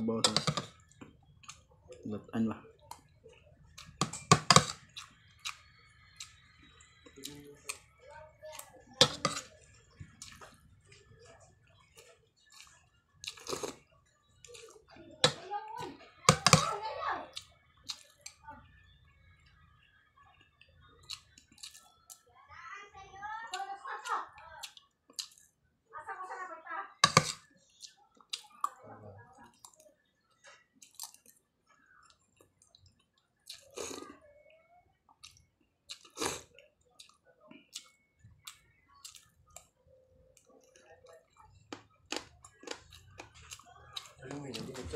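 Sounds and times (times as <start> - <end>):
man chewing food: 0.1 - 2.0, 2.8 - 15.4, 17.3 - 18.4, 20.4 - 22.3, 23.6 - 25.6, 29.4 - 34.2, 35.0 - 44.9
mouth sounds of eating: 8.6 - 15.0, 30.8 - 44.9
utensils clicking on plate: 27.0 - 27.4.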